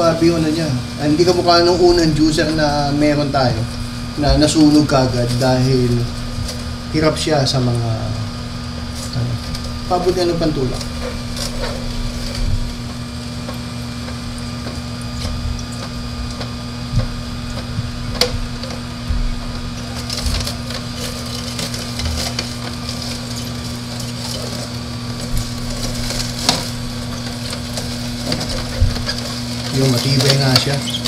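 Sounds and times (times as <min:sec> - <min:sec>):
juicer motor hum: 0:00.0 - 0:31.0
celery crunching and cracking: 0:03.6 - 0:31.0.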